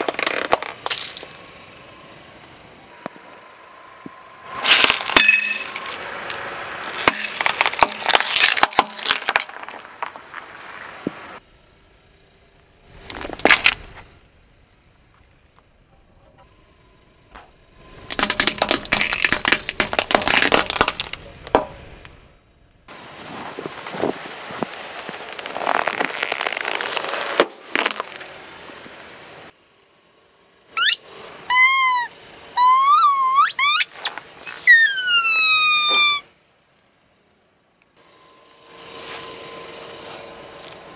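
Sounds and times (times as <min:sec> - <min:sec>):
plastic items crackling and snapping: 0:00.0 - 0:01.4, 0:06.8 - 0:10.2, 0:18.1 - 0:21.6, 0:23.9 - 0:28.3
candies crunching under tyre: 0:00.0 - 0:01.5, 0:04.6 - 0:10.9, 0:13.0 - 0:14.0, 0:18.1 - 0:21.6, 0:23.1 - 0:28.5
squeeze toys squealing: 0:30.8 - 0:36.3.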